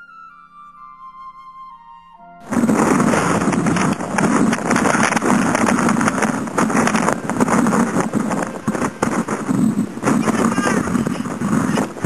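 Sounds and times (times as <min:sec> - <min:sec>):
wind buffeting microphone: 0:02.4 - 0:12.0.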